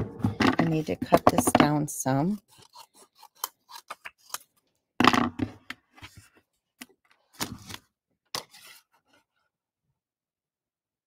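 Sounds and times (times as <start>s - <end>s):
tools knocking on tabletop: 0.0s - 1.8s.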